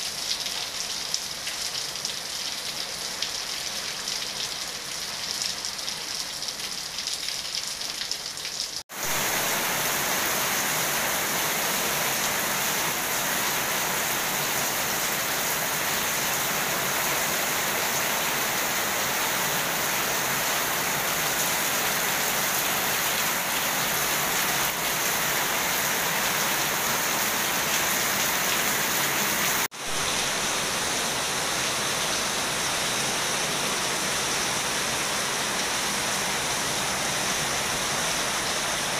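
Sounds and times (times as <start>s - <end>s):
heavy rain on pool and paving: 0.0s - 38.9s.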